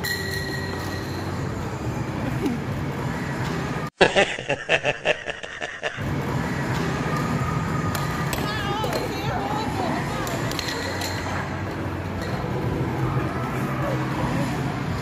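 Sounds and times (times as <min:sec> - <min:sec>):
old man laughing heartily: 0:04.0 - 0:06.0
amusement arcade noise: 0:06.0 - 0:15.0.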